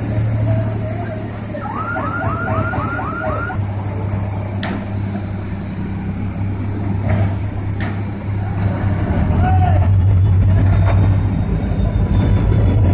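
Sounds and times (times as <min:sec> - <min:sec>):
diesel engines droning: 0:00.0 - 0:12.9
warbling alarm: 0:01.6 - 0:03.6.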